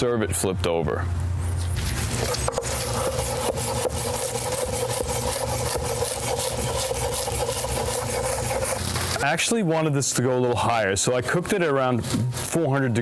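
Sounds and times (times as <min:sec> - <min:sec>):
knife chopping on wooden board: 0:02.2 - 0:09.2.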